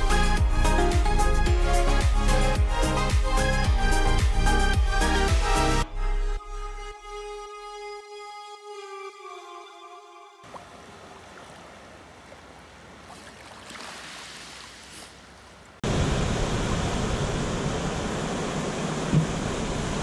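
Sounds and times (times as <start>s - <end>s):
shallow water lapping: 10.4s - 15.8s.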